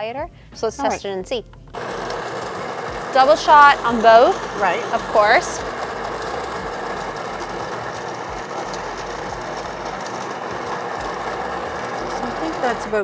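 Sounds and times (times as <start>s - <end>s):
coffee grinder grinding beans: 1.7s - 13.0s.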